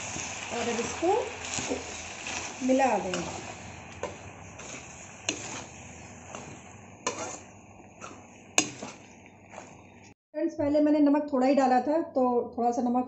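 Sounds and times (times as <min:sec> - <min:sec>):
metal spatula scraping a pan: 0:00.0 - 0:10.0.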